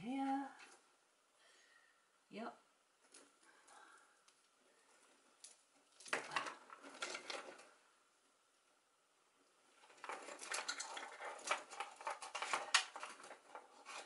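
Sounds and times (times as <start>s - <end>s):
cables and connectors rattling: 3.0s - 7.9s, 9.7s - 14.0s.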